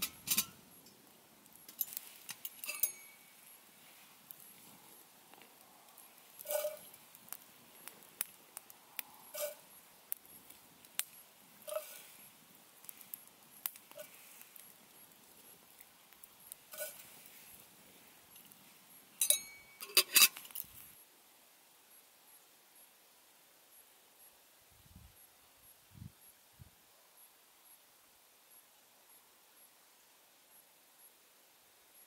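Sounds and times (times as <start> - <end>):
campfire crackling and popping: 0.0 - 20.9.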